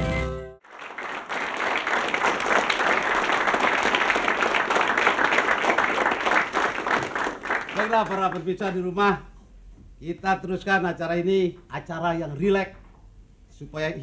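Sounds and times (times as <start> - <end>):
audience applauding: 0.6 - 8.8.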